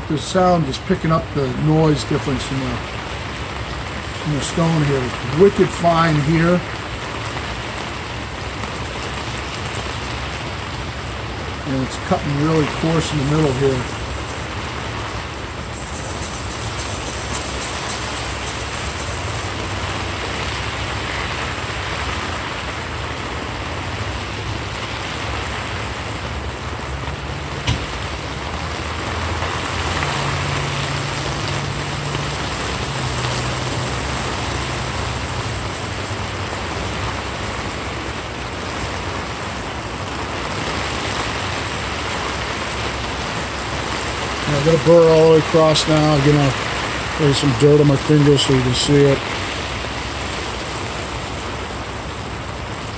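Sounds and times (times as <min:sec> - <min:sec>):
steady hissing: 0:01.4 - 0:09.8, 0:11.7 - 0:19.9, 0:29.6 - 0:36.2
low engine hum: 0:26.0 - 0:37.7.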